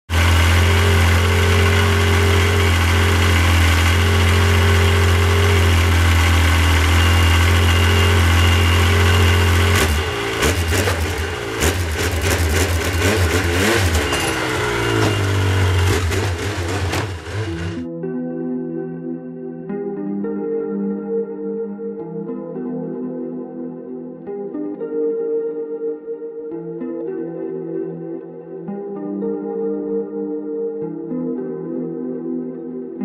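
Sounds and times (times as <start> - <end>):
snowmobile engine idling and revving: 0.1 - 17.8
sharp knocks and clatter: 9.8 - 17.8.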